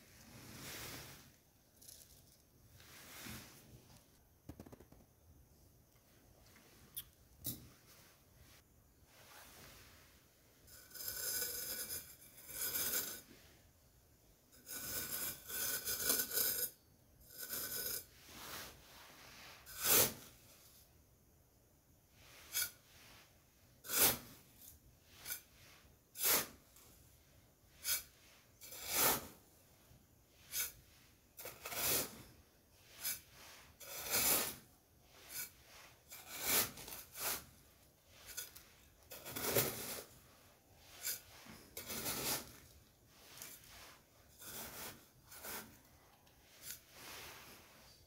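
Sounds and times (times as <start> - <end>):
metal spade scraping sand: 10.6 - 13.5, 14.6 - 20.7, 22.2 - 29.6, 30.2 - 48.0.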